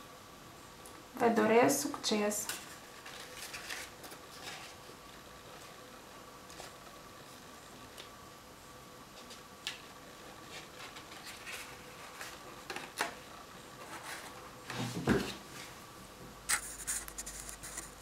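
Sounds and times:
paper rustling: 2.4 - 5.8, 9.2 - 13.2, 13.8 - 15.8, 16.5 - 18.0.

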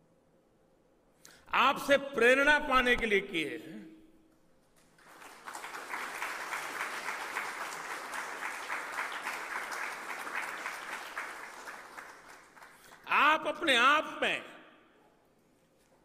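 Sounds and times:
crowd applauding: 4.8 - 13.1.

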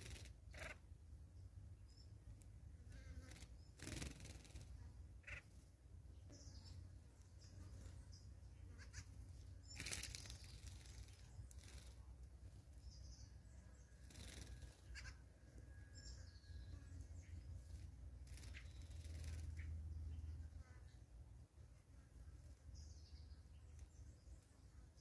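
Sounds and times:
distant bird chirps: 0.0 - 2.3, 3.0 - 21.1
bird wings flapping: 3.3 - 4.7, 9.7 - 12.0, 14.1 - 14.8.

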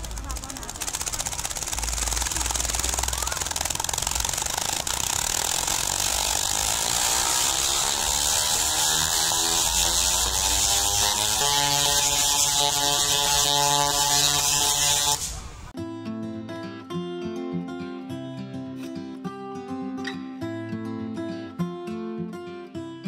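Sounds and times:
tesla coil buzzing crackle: 0.0 - 15.7.

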